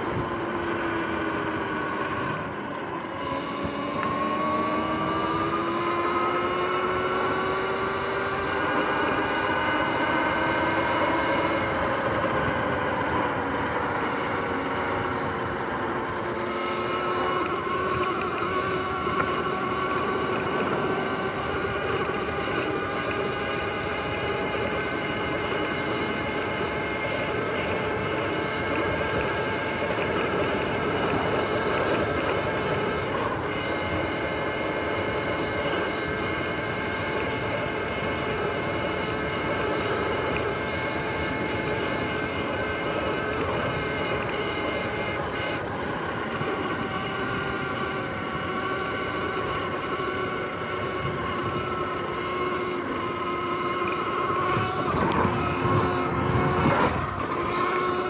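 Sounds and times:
electric motor whining: 0.0 - 58.0.

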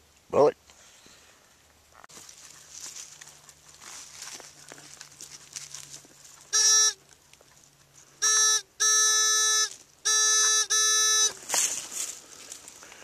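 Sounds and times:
pinpointer buzzing alert tone: 6.5 - 7.0, 8.2 - 11.4.

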